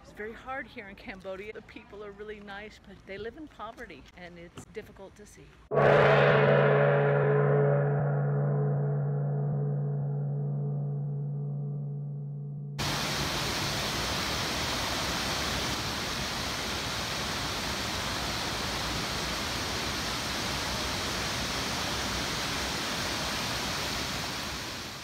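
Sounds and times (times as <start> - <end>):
gong tone in music: 5.7 - 12.8
waterfall rushing over rock: 12.8 - 25.0.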